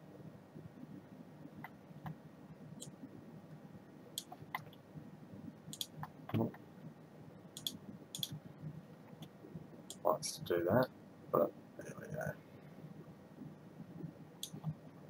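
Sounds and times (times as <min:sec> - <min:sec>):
faint low hum: 0:00.0 - 0:15.0
computer mouse clicking: 0:04.2 - 0:04.8, 0:05.7 - 0:06.6, 0:07.6 - 0:08.4, 0:14.4 - 0:14.8.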